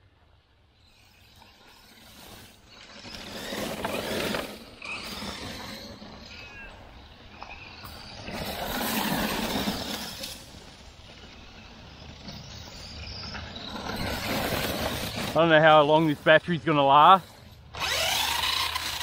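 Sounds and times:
tyres churning through wood chips: 0.8s - 19.0s
electric motor running: 1.8s - 6.5s, 17.3s - 19.0s.

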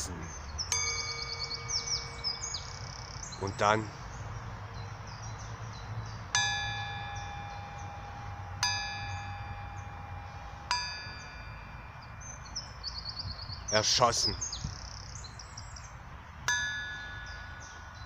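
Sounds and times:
faint birdsong: 0.0s - 18.0s
bell ringing: 0.7s - 3.9s, 6.3s - 13.1s.

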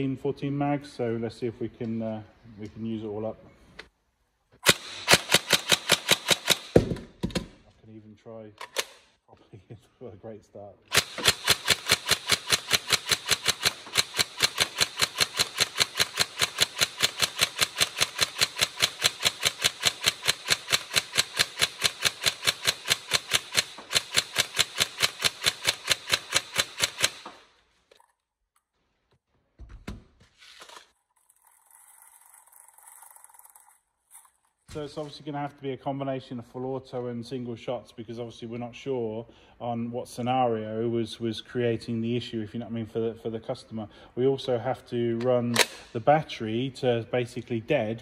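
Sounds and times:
airsoft rifle firing: 4.6s - 7.6s, 10.9s - 27.5s
thump: 6.8s - 7.5s.

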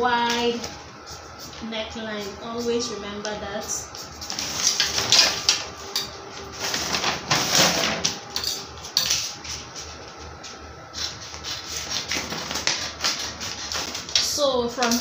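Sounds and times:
paper rustling and crinkling: 4.0s - 8.2s, 11.4s - 14.3s.

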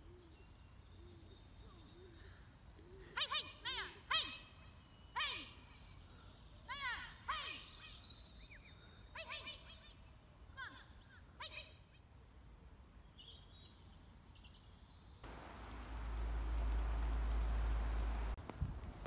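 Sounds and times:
birds chirping: 12.5s - 18.4s.

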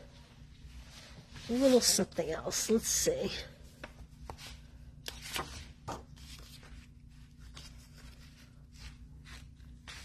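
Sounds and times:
paper sheets rustling: 3.7s - 10.0s.

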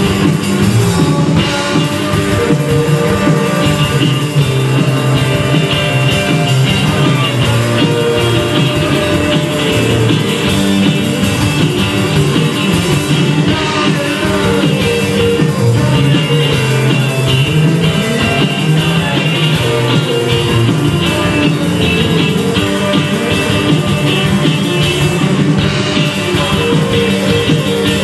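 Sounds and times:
live rock band playing: 0.0s - 28.0s.

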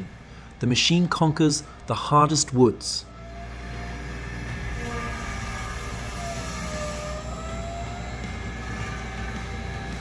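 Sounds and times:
circular log saw running: 3.4s - 10.0s.

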